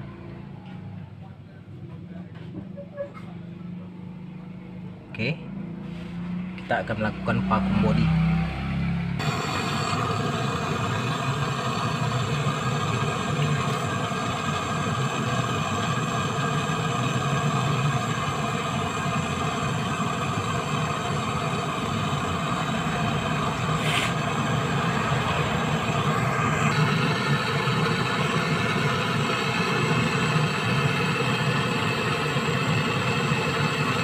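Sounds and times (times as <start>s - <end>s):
torch flame burning: 7.6s - 34.0s.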